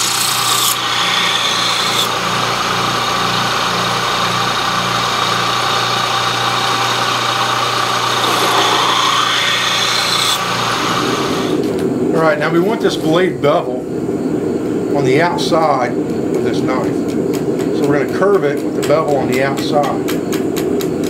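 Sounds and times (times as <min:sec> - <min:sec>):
steel being ground on belt: 0:00.0 - 0:02.2, 0:07.8 - 0:10.5
belt sander motor hum: 0:00.0 - 0:11.7.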